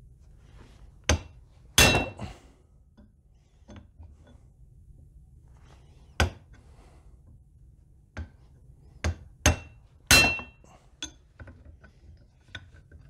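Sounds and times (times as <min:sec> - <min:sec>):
hammer striking steel punch: 0:01.1 - 0:02.2, 0:09.1 - 0:10.6.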